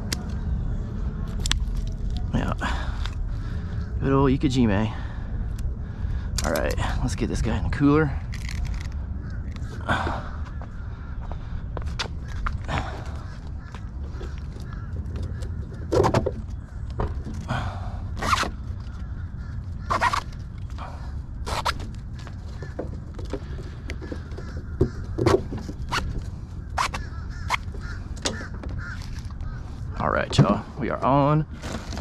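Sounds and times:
steady low rumble: 0:00.0 - 0:32.0
plastic buckles clicking: 0:08.2 - 0:09.7
straps rattling against plastic cooler: 0:14.1 - 0:19.0, 0:21.5 - 0:29.4, 0:31.5 - 0:32.0.

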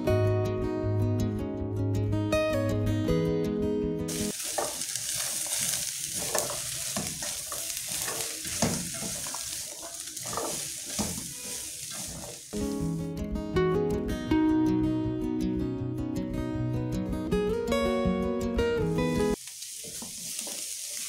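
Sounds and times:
acoustic guitar music: 0:00.0 - 0:04.3, 0:12.6 - 0:19.4
food sizzling in a wok: 0:04.1 - 0:13.0, 0:18.8 - 0:21.0
spatula scraping a wok: 0:04.2 - 0:12.6, 0:19.5 - 0:21.0.

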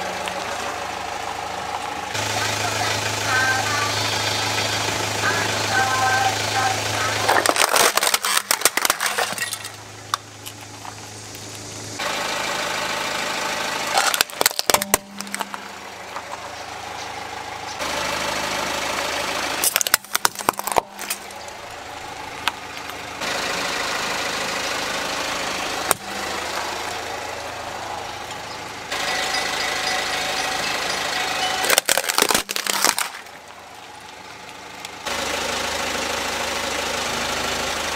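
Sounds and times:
car engine idling: 0:00.0 - 0:37.9
plastic toys cracking under tyre: 0:07.2 - 0:11.5, 0:13.9 - 0:15.6, 0:19.6 - 0:21.6, 0:31.6 - 0:35.0.

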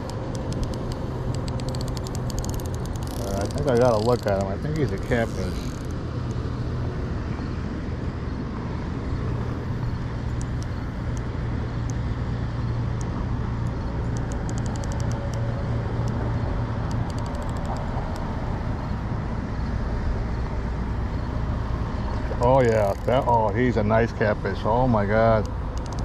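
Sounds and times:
fishing reel clicking: 0:00.0 - 0:06.0, 0:14.0 - 0:15.4, 0:16.9 - 0:18.2, 0:22.6 - 0:23.3, 0:25.8 - 0:26.0
road traffic rumble: 0:00.0 - 0:26.0.

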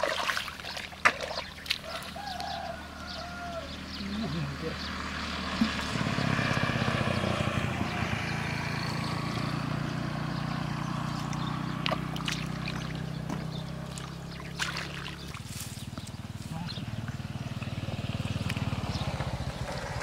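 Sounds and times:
water splashing: 0:00.0 - 0:02.3, 0:11.1 - 0:15.9
engine running: 0:00.6 - 0:20.0.

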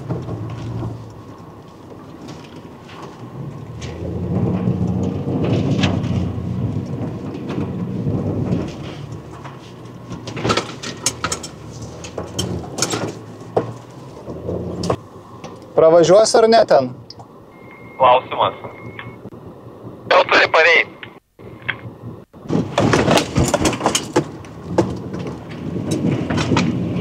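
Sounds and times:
sharp knocks and clatters: 0:00.0 - 0:15.6, 0:22.4 - 0:27.0
engine low rumble: 0:00.0 - 0:27.0.

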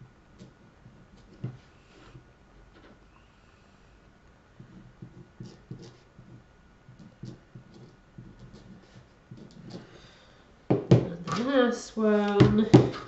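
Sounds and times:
pen nib tapping and scratching: 0:00.4 - 0:01.6, 0:04.6 - 0:09.9.

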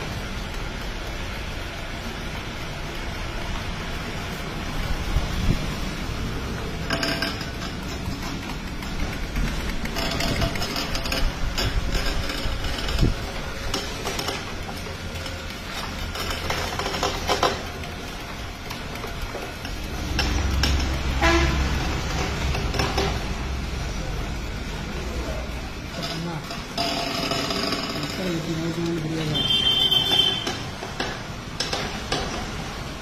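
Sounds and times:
mill mechanical rumble: 0:00.0 - 0:33.0
wooden knocks: 0:06.5 - 0:23.5, 0:29.4 - 0:33.0.

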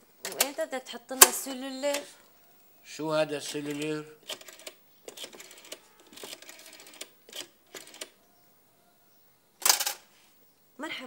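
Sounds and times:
telephone dial clicks: 0:03.5 - 0:08.2, 0:09.6 - 0:10.0.

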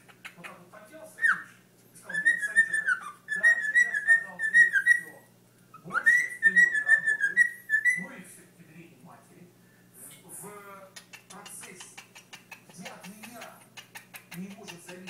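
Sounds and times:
cockatiel whistling: 0:01.2 - 0:01.5, 0:02.1 - 0:05.1, 0:05.8 - 0:08.0.

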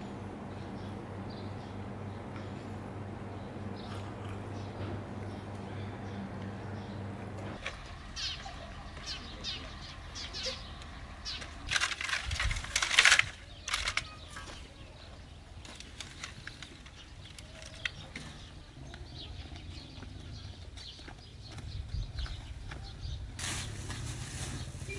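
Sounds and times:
small birds chirping: 0:00.3 - 0:24.9
dry sticks clattering: 0:11.3 - 0:14.6.

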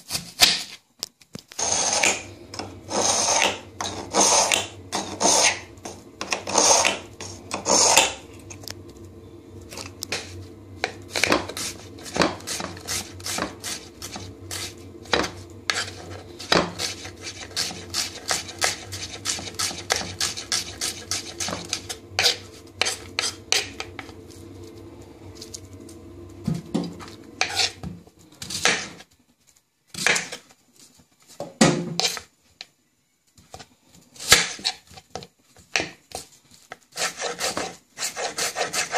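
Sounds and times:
steady low hum: 0:01.5 - 0:29.1.

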